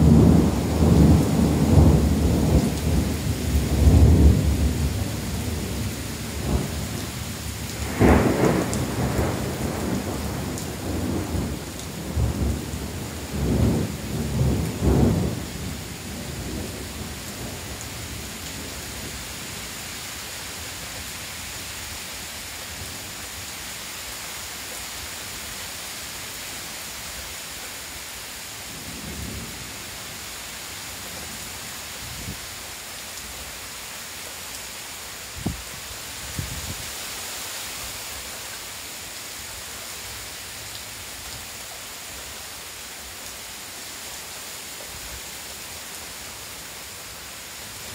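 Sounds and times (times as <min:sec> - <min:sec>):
thunder rumbling: 0:00.0 - 0:06.9, 0:07.8 - 0:16.8
heavy rain: 0:00.0 - 0:47.9.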